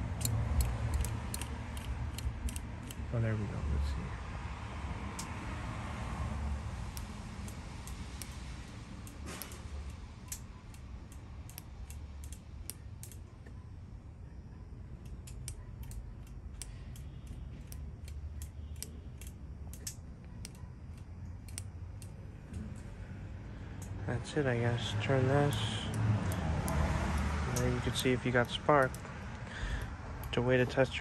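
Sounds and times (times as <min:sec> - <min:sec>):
spark plug sparks ticking: 0:00.0 - 0:03.1, 0:06.8 - 0:13.2, 0:15.0 - 0:22.2, 0:25.0 - 0:31.0.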